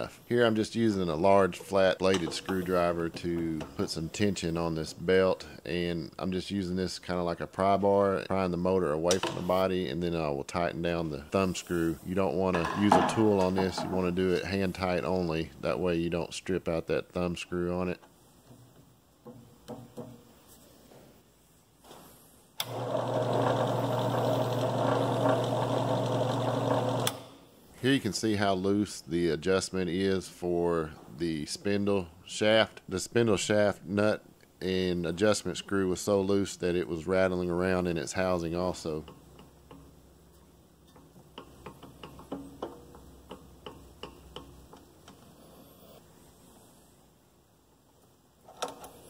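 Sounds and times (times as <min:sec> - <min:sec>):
drill press motor humming: 0:22.6 - 0:27.2.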